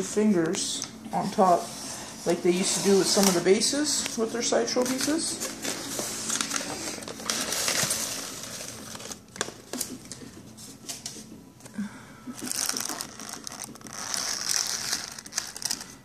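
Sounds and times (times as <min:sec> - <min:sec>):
styrofoam rubbing and rustling: 0:04.7 - 0:09.8, 0:12.4 - 0:16.0.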